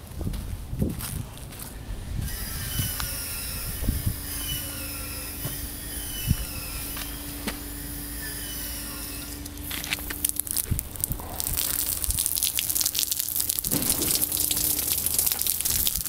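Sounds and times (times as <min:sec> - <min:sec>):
footsteps on grass and grit: 0:00.0 - 0:16.0
steady low hum: 0:00.0 - 0:16.0
high wavering squeal: 0:02.2 - 0:09.8.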